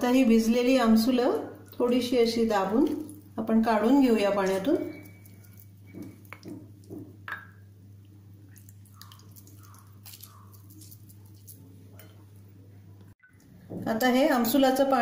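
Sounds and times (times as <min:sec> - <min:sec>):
wet squishing of squeezed fruit: 0:02.6 - 0:03.4, 0:04.4 - 0:07.2, 0:08.0 - 0:12.1
water dripping into a bowl: 0:02.7 - 0:03.4, 0:04.5 - 0:12.1.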